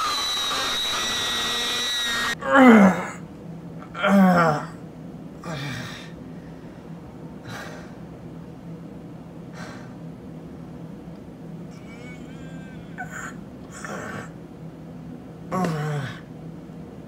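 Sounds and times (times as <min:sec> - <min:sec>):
low hum: 0:00.0 - 0:17.0
man gasping breaths: 0:05.4 - 0:08.0.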